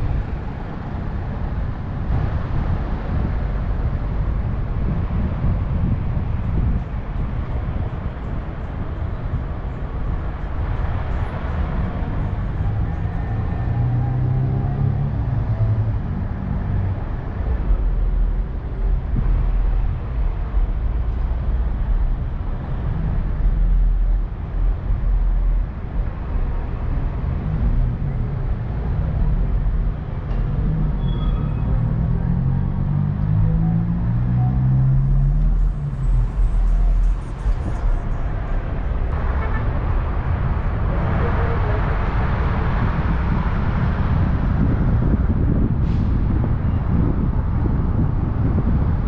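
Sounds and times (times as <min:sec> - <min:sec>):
traffic engine rumble and road noise: 0:00.0 - 0:49.0
louder vehicle engine: 0:26.2 - 0:48.8.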